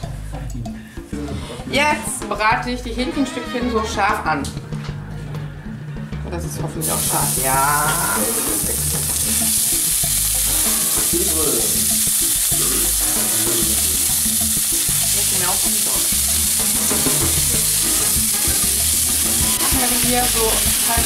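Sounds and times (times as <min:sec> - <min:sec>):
chicken sizzling in a frying pan: 0:06.8 - 0:21.0.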